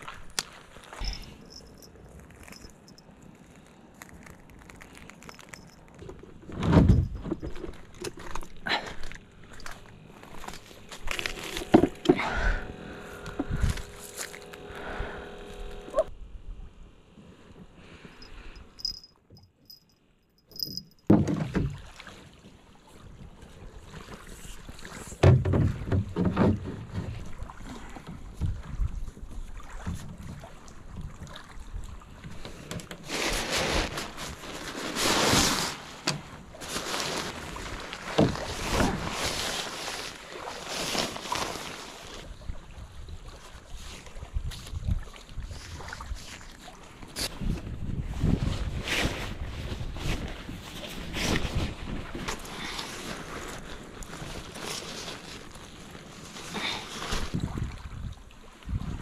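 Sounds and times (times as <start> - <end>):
knocks and clatter on boat: 6.2 - 8.5, 20.7 - 22.5, 25.2 - 33.1, 38.1 - 39.1
plastic tarp rustling: 9.7 - 12.0, 33.0 - 42.3, 48.2 - 57.6.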